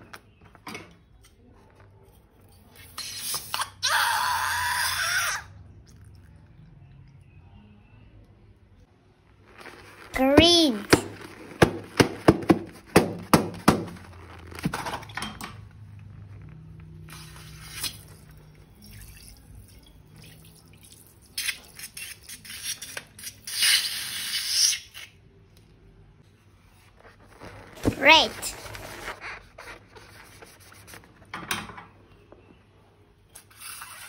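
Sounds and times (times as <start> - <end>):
dripping slime: 5.6 - 7.4, 16.3 - 23.3.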